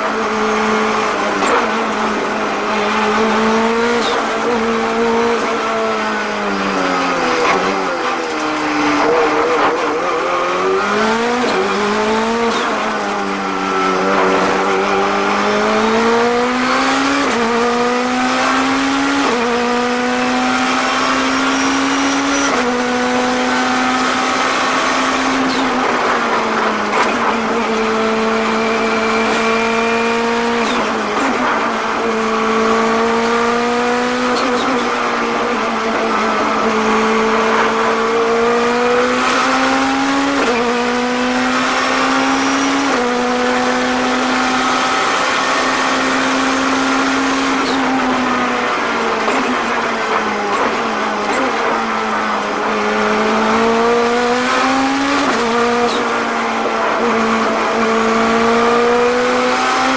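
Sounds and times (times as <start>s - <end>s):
race car engine accelerating: 0.0s - 59.9s.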